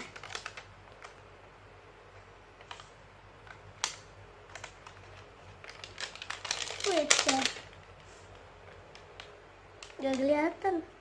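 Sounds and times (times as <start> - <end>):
plastic wrapper crinkling: 0.0 - 1.1, 4.6 - 10.4.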